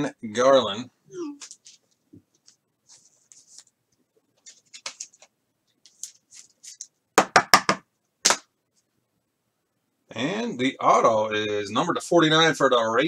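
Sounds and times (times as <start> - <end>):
trading cards rustling and clicking: 4.4 - 6.9.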